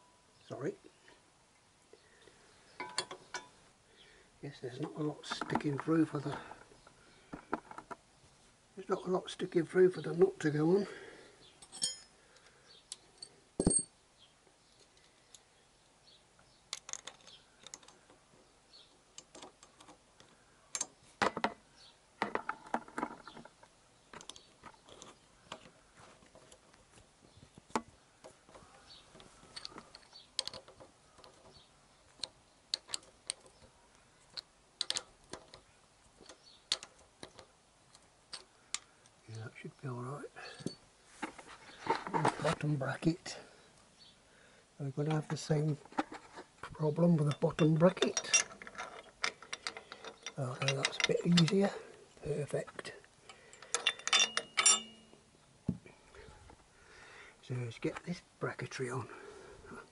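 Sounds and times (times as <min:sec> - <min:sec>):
metallic clicks of nut threading: 0:16.7 - 0:18.2, 0:19.1 - 0:21.6, 0:29.1 - 0:39.2, 0:47.2 - 0:51.8, 0:52.8 - 0:55.1.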